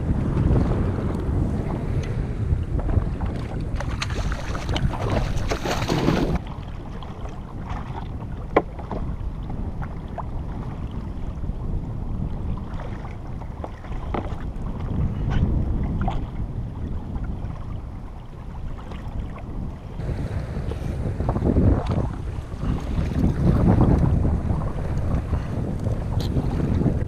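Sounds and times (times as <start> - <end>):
sea noise: 0.0 - 27.0
wind: 0.0 - 27.0
water splashing: 3.2 - 9.1.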